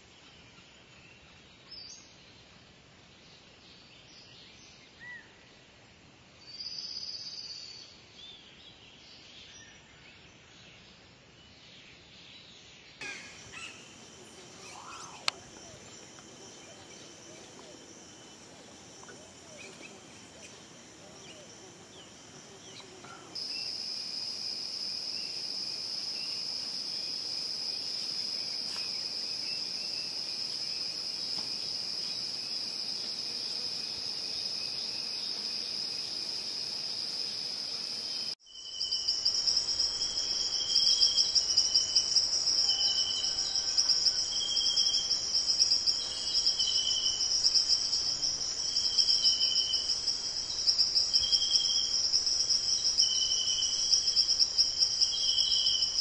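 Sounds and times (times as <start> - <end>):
insects calling: 13.0 - 56.0.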